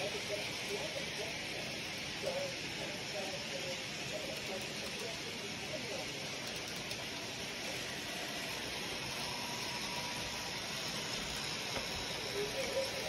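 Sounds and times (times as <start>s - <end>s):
toy trains whirring on track: 0.0s - 13.0s.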